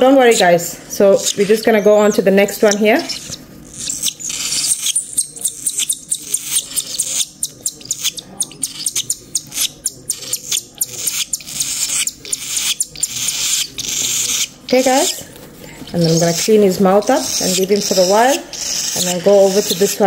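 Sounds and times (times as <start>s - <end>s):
bird chicks begging calls: 0.0s - 15.2s, 15.9s - 20.0s.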